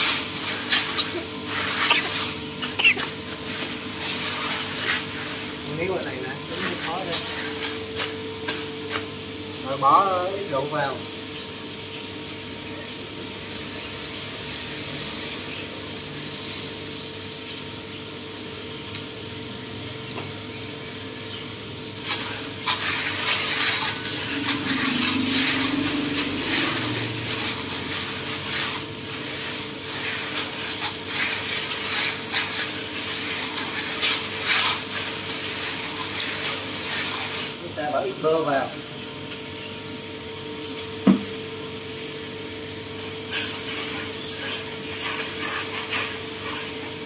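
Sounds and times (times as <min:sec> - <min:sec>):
coffee beans rattling in basin: 0:00.0 - 0:11.0, 0:20.8 - 0:39.6, 0:41.8 - 0:47.0.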